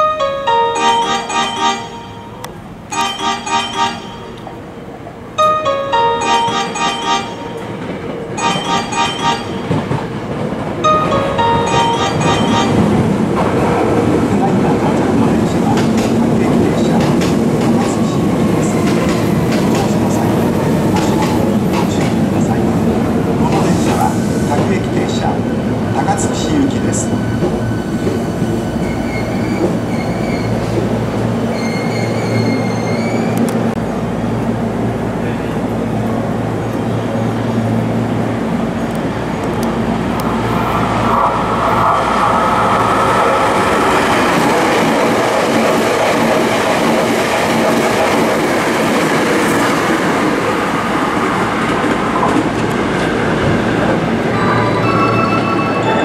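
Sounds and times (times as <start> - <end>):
train rumble: 0.0 - 56.0
bell-like chime: 0.1 - 4.6, 5.4 - 7.8, 8.4 - 10.0
train brakes squealing: 26.9 - 30.8, 31.5 - 33.4, 54.3 - 56.0.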